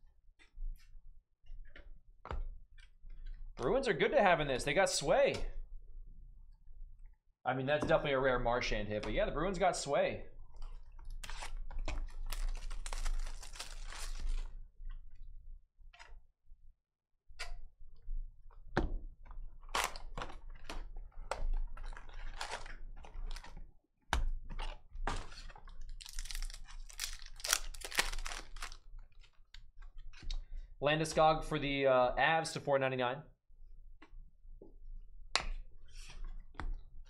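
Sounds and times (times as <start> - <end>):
card packs crinkling: 11.2 - 14.6, 21.6 - 23.6, 24.6 - 29.5.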